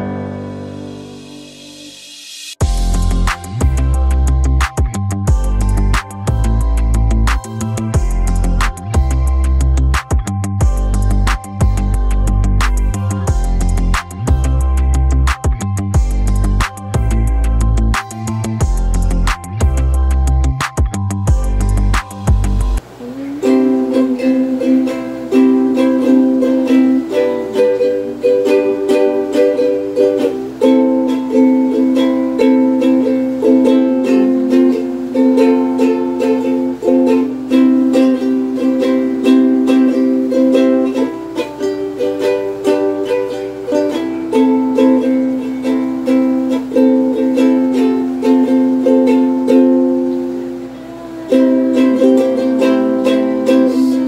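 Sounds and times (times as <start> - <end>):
ukulele strumming chords: 0.0 - 1.9, 2.6 - 54.0.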